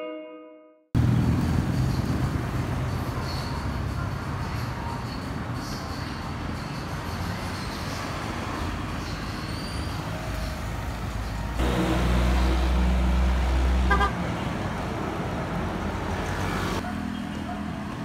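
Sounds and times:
road traffic passing: 1.0s - 18.0s
heavy vehicle engine rumble: 8.7s - 16.8s.

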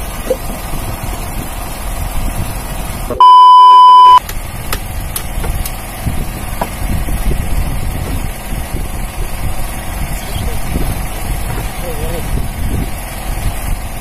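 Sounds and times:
boat engine running: 0.0s - 14.0s
loud electronic bleep: 3.2s - 4.2s.

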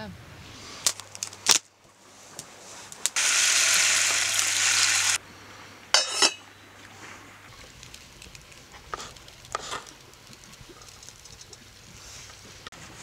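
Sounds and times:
metal lid clattering onto pot: 6.0s - 6.4s.

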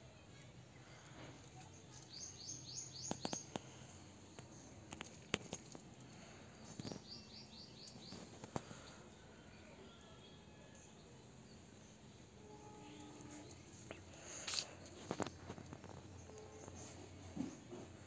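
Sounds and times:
small bird singing: 1.6s - 5.0s, 6.6s - 14.0s.

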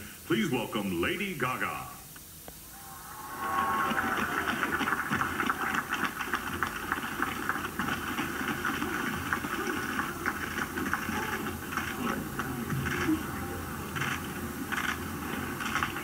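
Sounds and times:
audience applause: 2.7s - 16.0s
murmur of voices: 9.4s - 14.8s.

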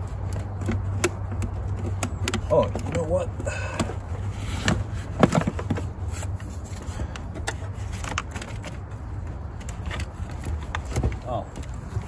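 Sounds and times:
battery case knocks and scrapes: 3.7s - 6.6s, 9.6s - 12.0s.

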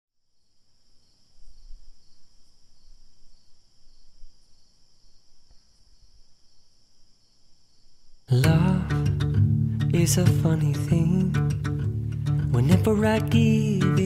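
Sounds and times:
insects trilling: 0.2s - 8.4s.

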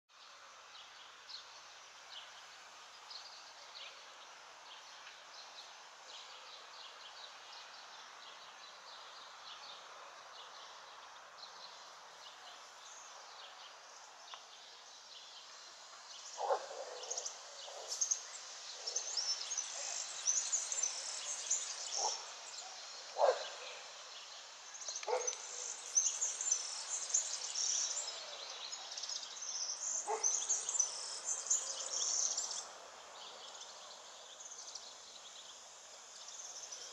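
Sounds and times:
steady background hiss: 0.1s - 36.9s
small birds chirping: 10.5s - 36.9s.

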